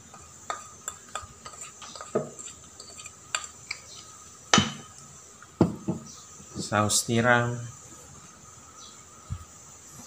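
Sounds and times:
spoon scraping plastic container: 0.5 - 4.1.

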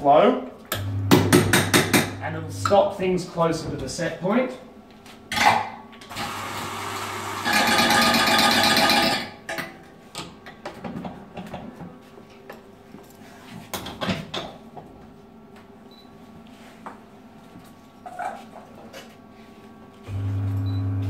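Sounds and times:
portafilter clicks and knocks: 0.7 - 2.2
coffee grinder motor: 6.1 - 9.2.

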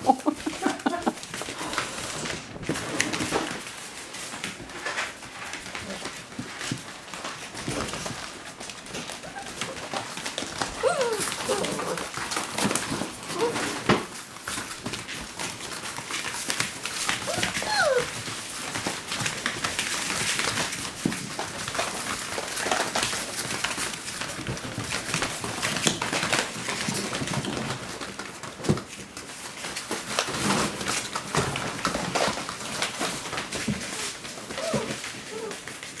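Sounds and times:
puppy claws pattering on floor: 0.0 - 36.0
puppies yipping: 10.8 - 12.1, 17.2 - 18.1, 34.5 - 35.6.

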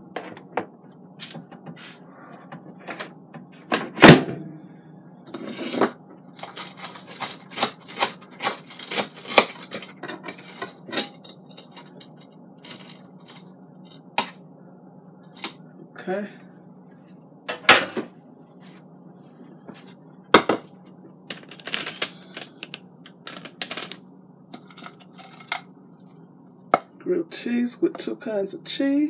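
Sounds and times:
utensils clinking and scraping: 5.4 - 14.4, 23.2 - 25.7.

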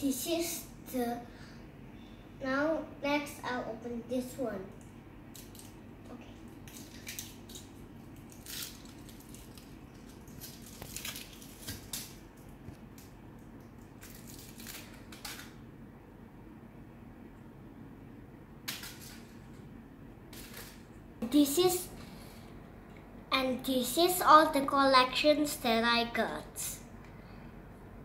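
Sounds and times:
foil wrapper crinkling: 6.6 - 13.1, 13.8 - 15.6.

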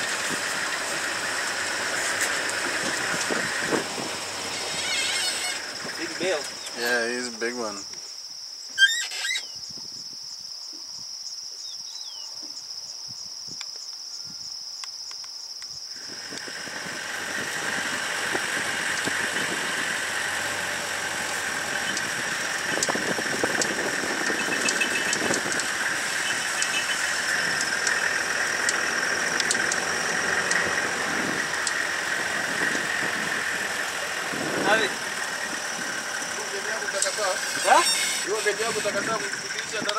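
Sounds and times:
vehicle body rattling: 0.0 - 6.9
vehicle engine driving: 0.0 - 7.8, 16.0 - 39.9
high-pitched insect trill: 0.1 - 39.9.

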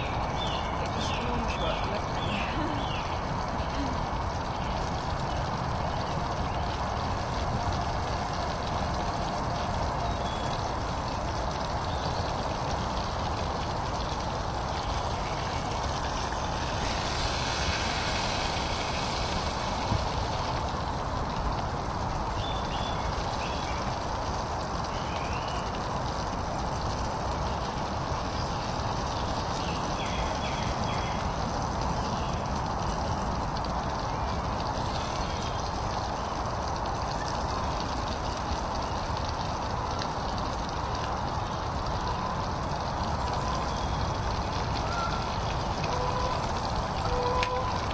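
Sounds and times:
food sizzling in pan: 0.0 - 33.1
stove burner hiss: 0.8 - 33.5.

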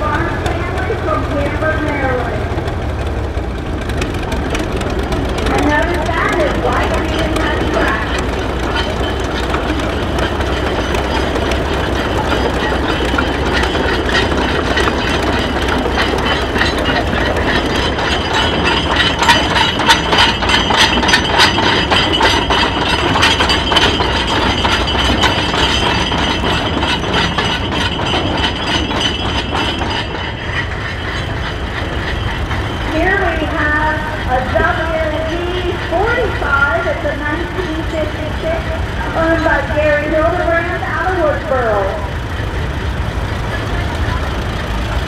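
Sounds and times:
metallic clanks and clicks: 0.0 - 45.0
tractor engine running: 0.0 - 45.0.

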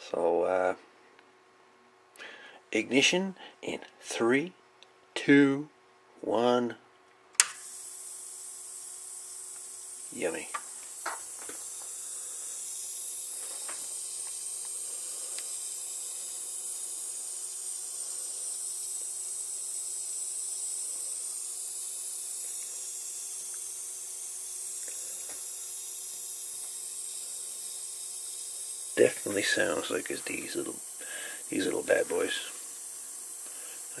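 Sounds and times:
high-pitched sizzling hiss: 7.4 - 34.0.

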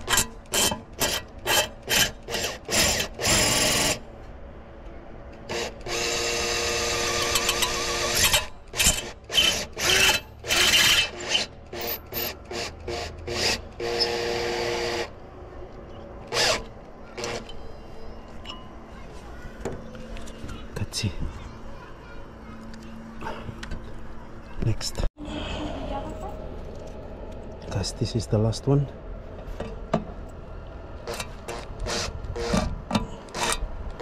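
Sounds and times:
power drill driving screws: 5.5 - 15.1, 16.3 - 17.4.

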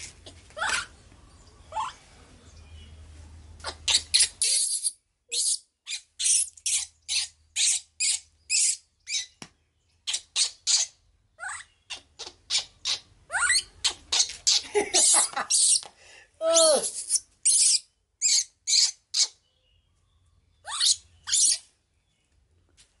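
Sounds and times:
baby monkey squeaking: 0.6 - 1.0, 1.7 - 2.0, 3.6 - 9.4, 10.0 - 15.9, 16.6 - 19.4, 20.6 - 21.7.

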